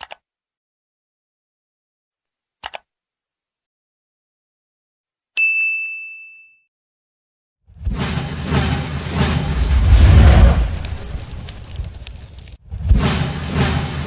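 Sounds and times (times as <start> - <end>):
computer mouse clicks: 0.0 - 0.2, 2.6 - 2.9
bright bell ding: 5.4 - 6.7.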